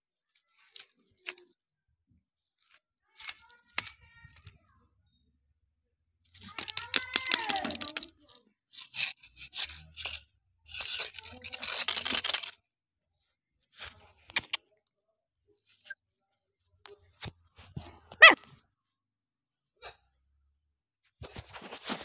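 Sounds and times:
scuffs and clicks: 16.9s - 18.6s, 21.2s - 22.0s.

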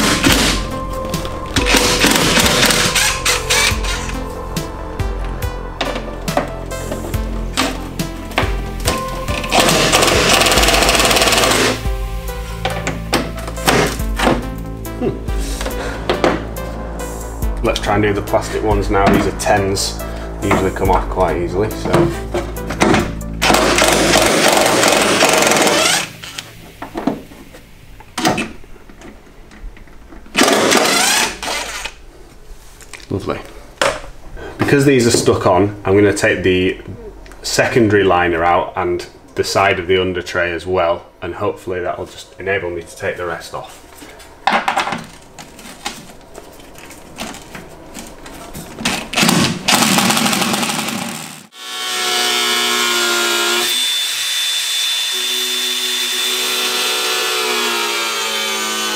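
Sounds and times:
impact wrench hammering: 1.6s - 4.0s, 8.4s - 11.8s, 22.7s - 26.1s
cordless power driver running: 9.5s - 11.8s, 49.2s - 52.0s.

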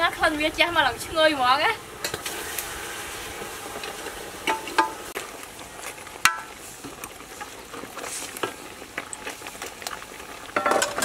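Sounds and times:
metal ladle clinking on pot: 10.6s - 11.0s.

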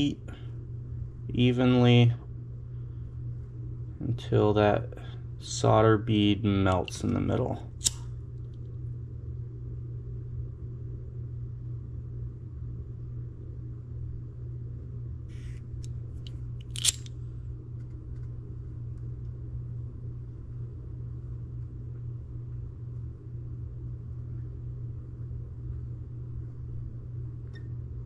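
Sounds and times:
low background hum: 0.0s - 28.0s
sharp click: 7.8s - 8.1s, 15.8s - 17.2s.

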